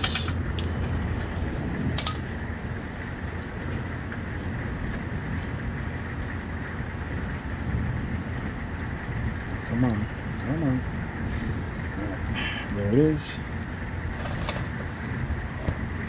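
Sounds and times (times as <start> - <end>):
metallic clink: 2.0 - 2.3
steady hiss: 2.5 - 16.0.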